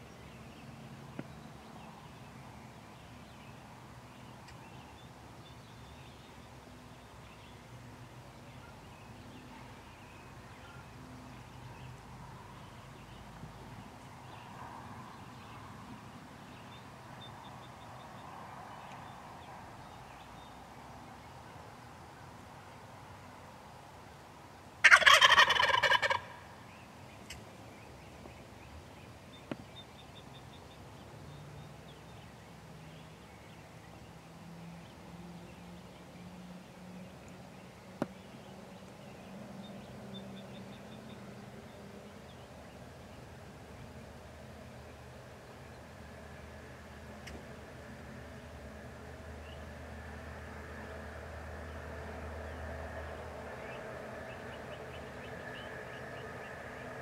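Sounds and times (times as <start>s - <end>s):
turkey gobbling: 24.8s - 26.4s.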